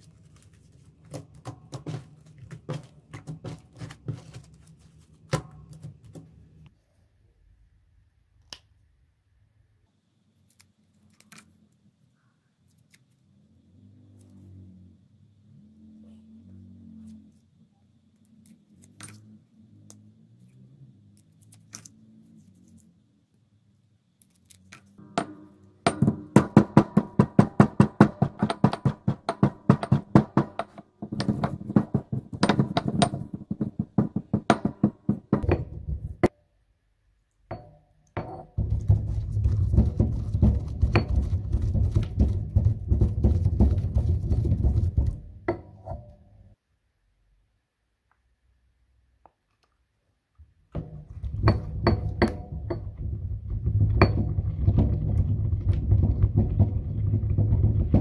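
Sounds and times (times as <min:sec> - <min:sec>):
handling of crayons: 0:00.0 - 0:06.4
pestle pounding in marble mortar: 0:01.1 - 0:04.7, 0:25.0 - 0:36.3, 0:37.5 - 0:45.9, 0:50.8 - 0:58.0.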